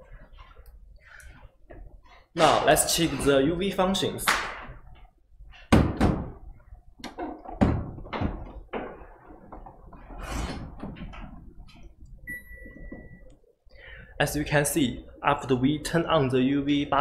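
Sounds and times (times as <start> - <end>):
steady electronic beep: 12.2 - 13.4.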